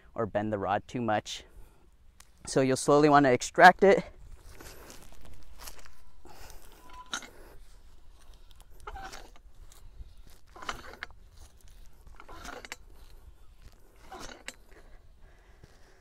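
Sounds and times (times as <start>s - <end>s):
metallic scrape and clank: 5.0s - 15.0s.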